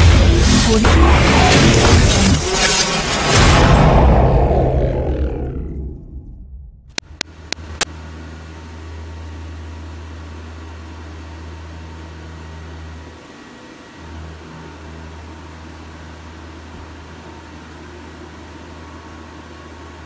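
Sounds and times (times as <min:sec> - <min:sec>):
sharp clicks: 0:06.9 - 0:07.9.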